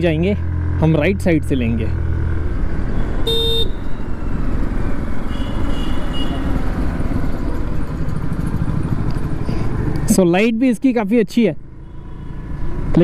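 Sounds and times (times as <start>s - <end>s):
scooter engine running: 4.8s - 10.1s.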